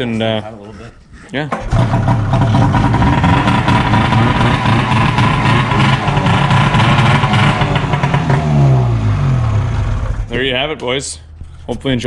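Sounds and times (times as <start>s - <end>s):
snowmobile engine running loud: 1.7s - 10.3s.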